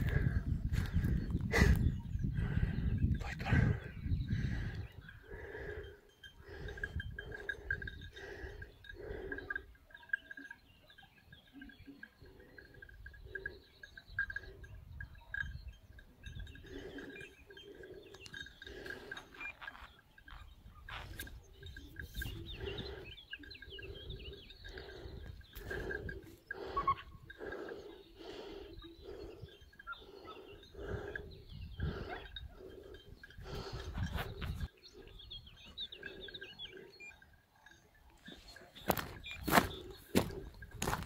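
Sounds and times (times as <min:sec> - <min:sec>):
low wind rumble: 0:00.0 - 0:09.3
hounds baying: 0:05.0 - 0:41.0
animal calls: 0:06.4 - 0:40.9.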